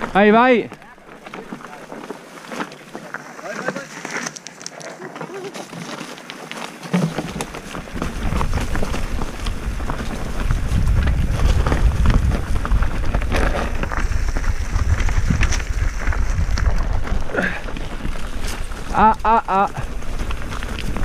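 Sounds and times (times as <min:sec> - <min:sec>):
bike knocking and rattling: 0:00.0 - 0:21.0
wind buffeting microphone: 0:07.5 - 0:21.0.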